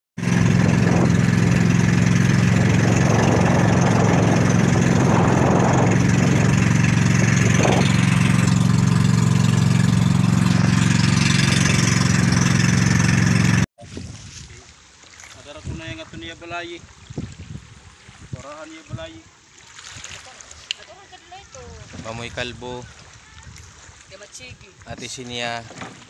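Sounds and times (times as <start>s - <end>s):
boat engine droning: 0.2s - 13.7s.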